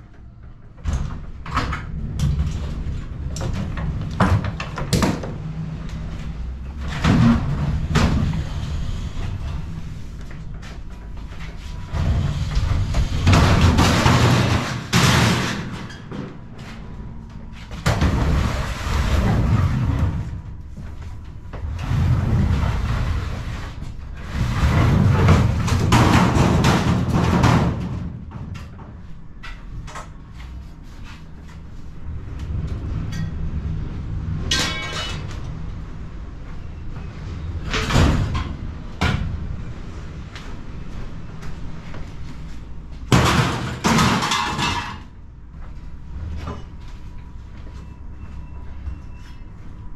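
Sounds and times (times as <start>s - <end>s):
sheet metal furniture clanking: 1.0s - 17.0s, 17.6s - 30.2s, 43.1s - 45.2s
metal cabinets scraping on wood floor: 5.7s - 16.9s, 17.5s - 28.2s
loud metal crash: 13.0s - 15.9s, 43.1s - 45.1s.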